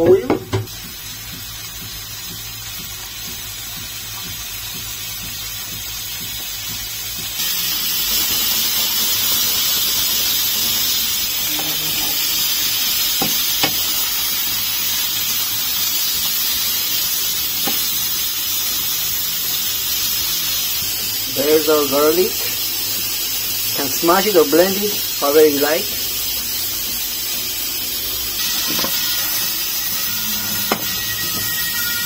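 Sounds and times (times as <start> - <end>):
peppers sizzling in a frying pan: 0.0 - 32.0
wooden spatula knocking on pan: 0.2 - 0.8.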